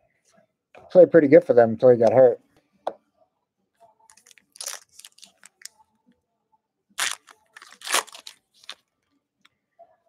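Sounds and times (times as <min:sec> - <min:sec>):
foil wrapper crinkling: 0:04.1 - 0:05.7, 0:07.0 - 0:08.8.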